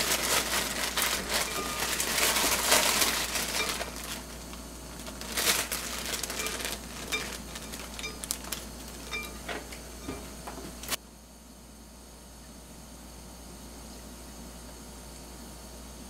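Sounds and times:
sprouts rustling: 0.0 - 9.4
plastic bag crinkling: 0.0 - 9.5.

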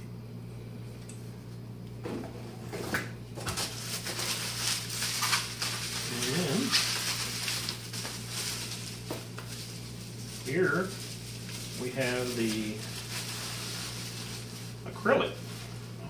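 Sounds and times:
bubble wrap and plastic rustling: 2.9 - 16.0.

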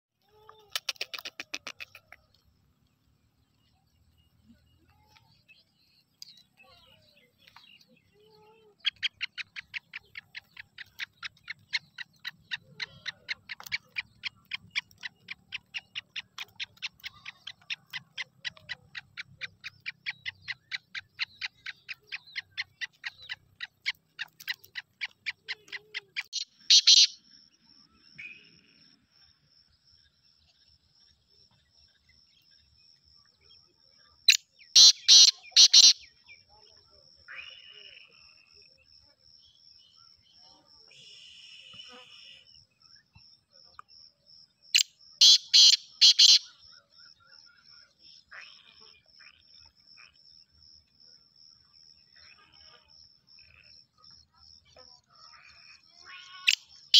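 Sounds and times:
bird chirping: 0.2 - 56.9
bird harsh calls: 0.6 - 2.4, 6.6 - 27.2, 34.3 - 36.2, 45.2 - 46.9.

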